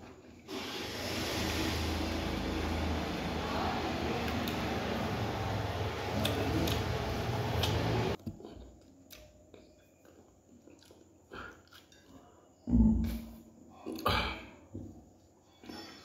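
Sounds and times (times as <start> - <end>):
person chewing food: 6.1 - 13.2.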